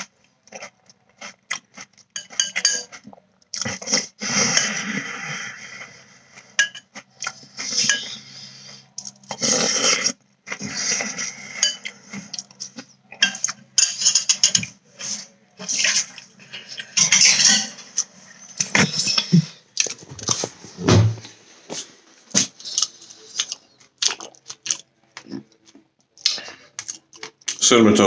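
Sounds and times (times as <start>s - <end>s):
crunchy chewing of cereal: 0.0s - 18.4s, 22.4s - 27.6s
metal spoon clinking in bowl: 2.2s - 3.0s.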